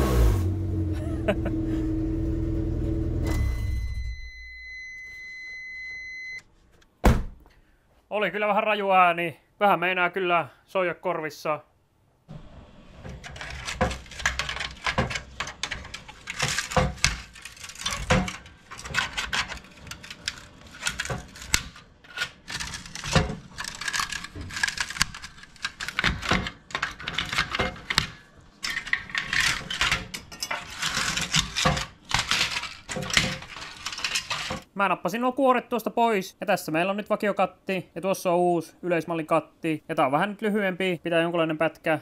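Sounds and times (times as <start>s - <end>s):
sheet metal clinking and scraping: 12.9s - 34.7s.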